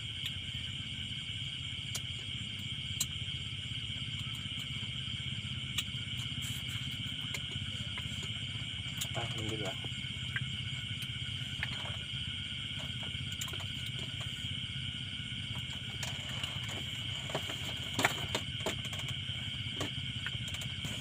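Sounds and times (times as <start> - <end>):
low hum: 0.0 - 21.0
night insects chirring: 0.0 - 21.0.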